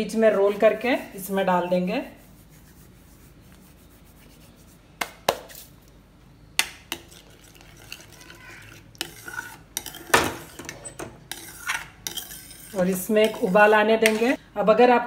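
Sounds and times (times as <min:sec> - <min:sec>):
spoon stirring gravy: 0:06.6 - 0:14.4.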